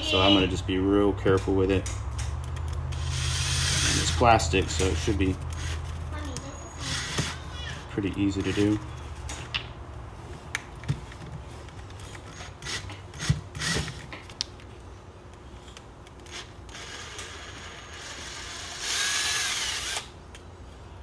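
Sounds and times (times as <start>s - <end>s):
cordless drill whining: 3.0s - 4.2s, 6.7s - 7.5s, 12.3s - 14.0s, 16.3s - 20.1s.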